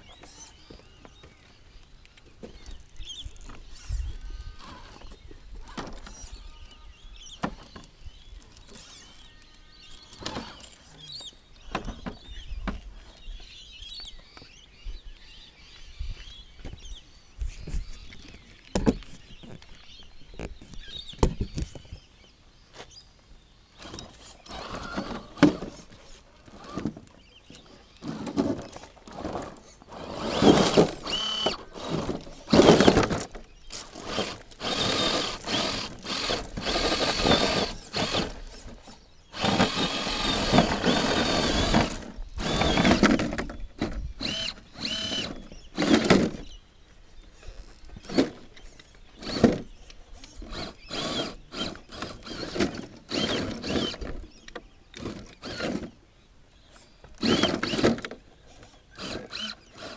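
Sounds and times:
electric motor whining: 23.8 - 27.2, 29.0 - 46.1, 50.2 - 54.2, 57.2 - 57.9, 58.9 - 59.9.

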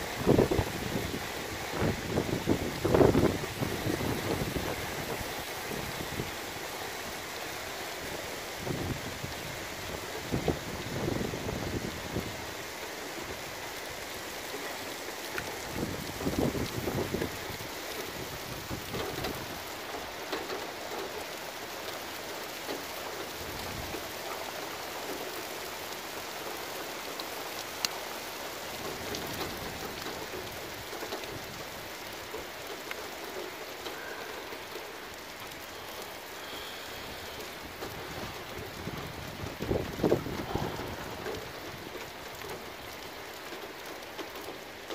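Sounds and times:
wind gusts buffeting microphone: 0.0 - 7.5, 8.2 - 14.6, 15.3 - 19.8, 36.9 - 44.6
heavy rain pouring: 0.0 - 44.9.

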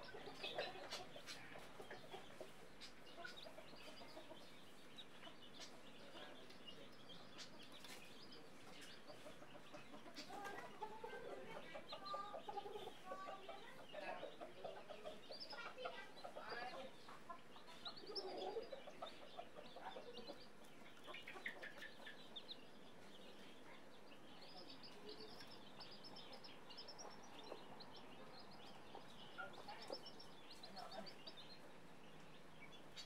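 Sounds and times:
chicks peeping: 0.0 - 33.0
hen clucking: 0.0 - 33.0.

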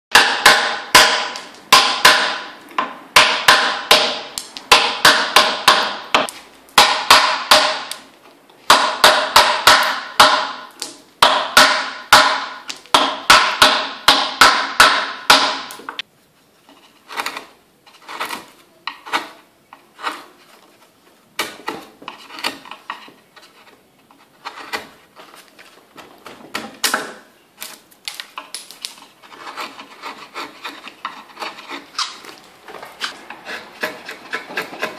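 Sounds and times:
mallet tapping wood gouge: 0.1 - 8.0, 8.6 - 16.1, 21.4 - 34.9
gouge cutting and scraping wood: 16.6 - 34.9.

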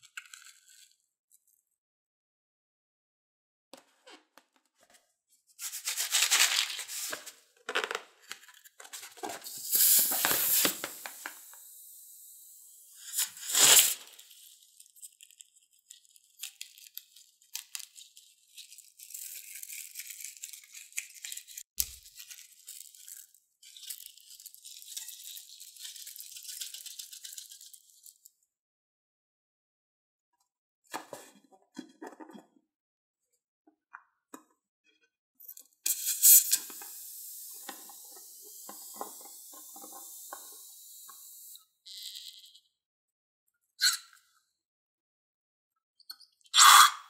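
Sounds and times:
rubber tearing and rubbing: 13.0 - 14.4.

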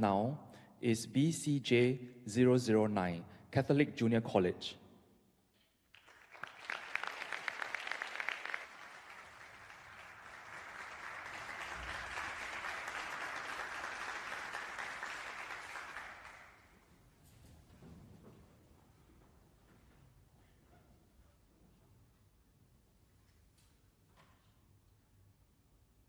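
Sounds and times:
audience applauding: 5.9 - 16.8.

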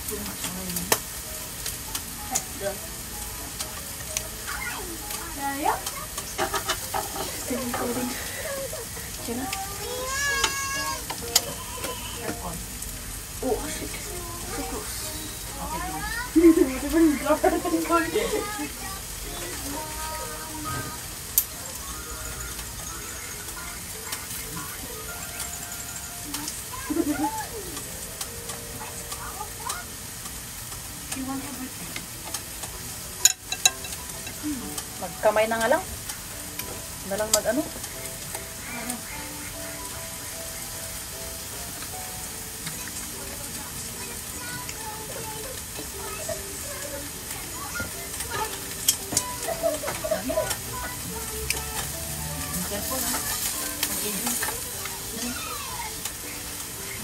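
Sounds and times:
food sizzling on grill: 0.0 - 57.0
sharp utensil clicks: 3.6 - 4.3.

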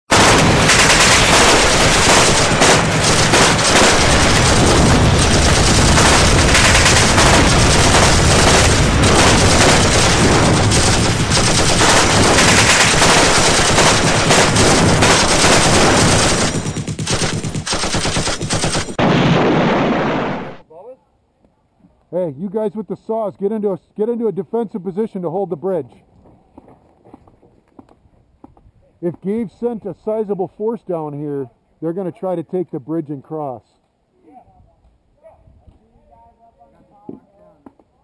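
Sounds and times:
rapid automatic gunfire: 0.1 - 20.6.

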